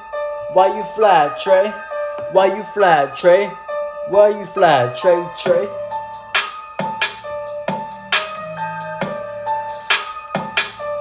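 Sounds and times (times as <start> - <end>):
keyboard melody: 0.0 - 11.0
person rapping: 0.5 - 6.0
bass line: 5.1 - 9.7.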